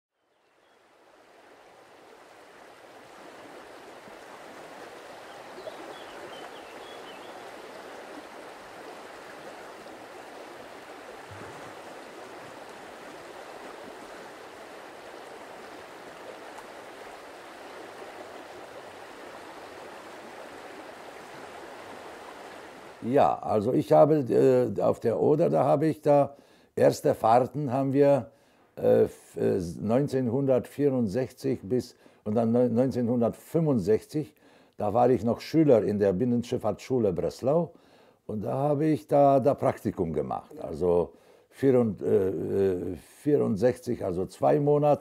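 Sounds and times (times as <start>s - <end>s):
rushing water: 0.4s - 24.6s, 38.3s - 43.2s.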